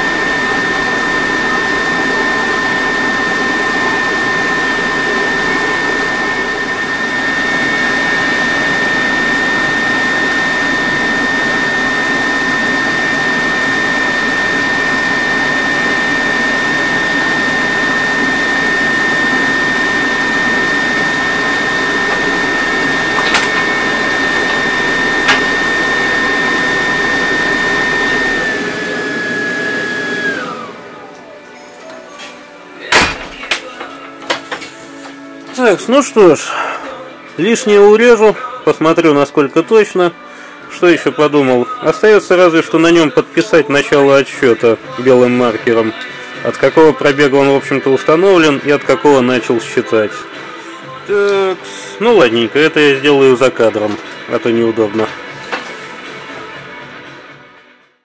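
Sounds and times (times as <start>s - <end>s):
high whine: 0.0s - 31.4s.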